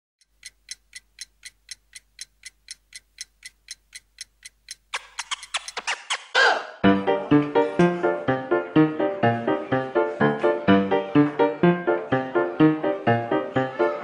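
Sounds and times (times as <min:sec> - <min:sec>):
clock ticking: 0:00.2 - 0:06.4.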